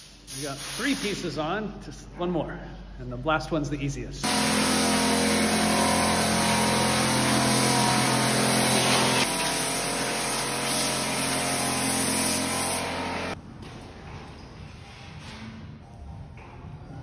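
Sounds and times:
machine motor humming and hissing: 4.2 - 13.4.

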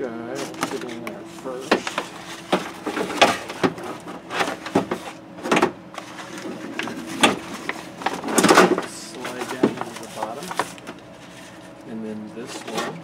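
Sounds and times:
metal clanking and scraping in door: 1.6 - 10.2.

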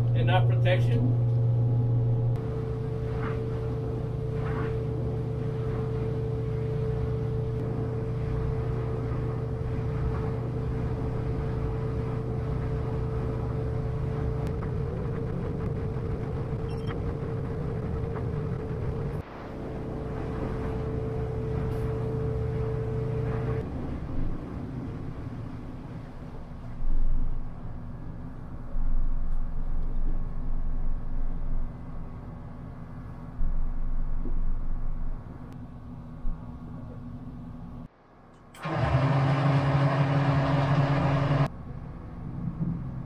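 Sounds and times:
boat engine droning: 0.0 - 43.0
humming tone: 1.1 - 23.6.

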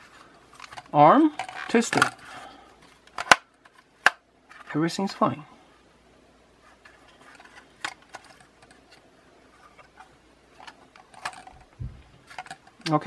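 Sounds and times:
plastic drone body being handled: 0.0 - 4.7, 6.6 - 12.8.

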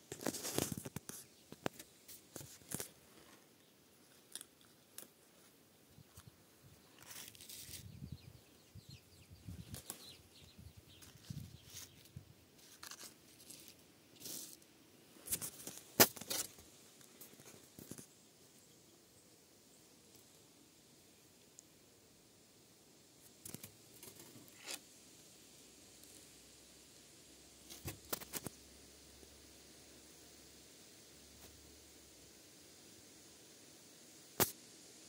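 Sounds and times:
rustling of vine leaves: 0.0 - 8.4, 9.4 - 18.3, 23.2 - 25.0, 27.6 - 28.6.

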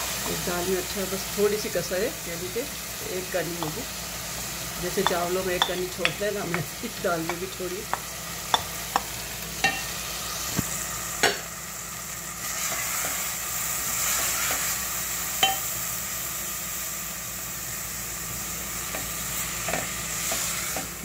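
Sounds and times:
food sizzling in a pot: 0.0 - 21.0
wooden spoon knocking on pot: 5.0 - 9.8.

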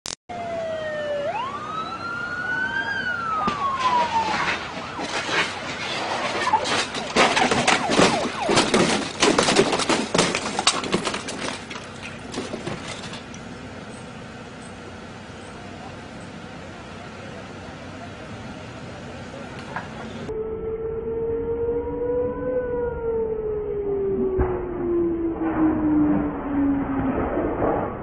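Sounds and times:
police siren wailing: 0.3 - 11.3, 20.3 - 27.3.

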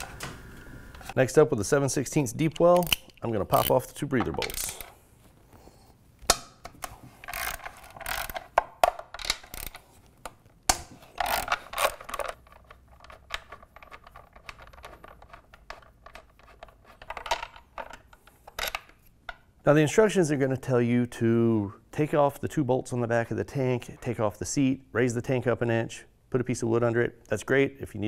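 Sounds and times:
socket ratchet clicking: 2.5 - 3.8, 7.2 - 9.8, 11.2 - 12.4.

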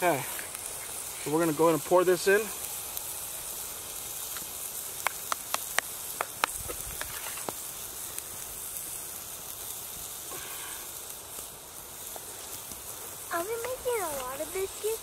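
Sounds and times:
bacon sizzling: 0.0 - 15.0.

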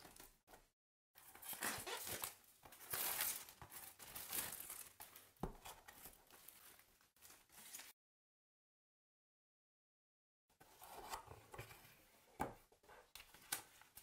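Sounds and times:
plastic shrink-wrap crinkling and tearing: 1.4 - 5.3.

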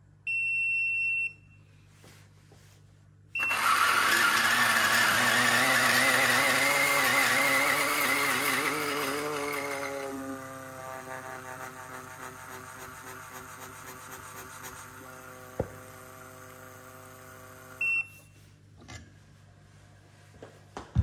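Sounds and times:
coffee grinder motor grinding: 3.4 - 17.8.

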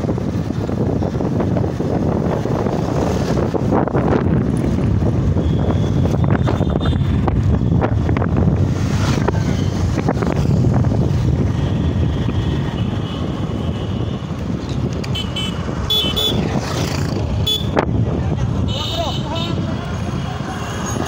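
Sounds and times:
wind rushing over microphone: 0.0 - 21.0
vehicle horn toots: 5.4 - 7.2, 15.1 - 16.4, 17.4 - 17.8.

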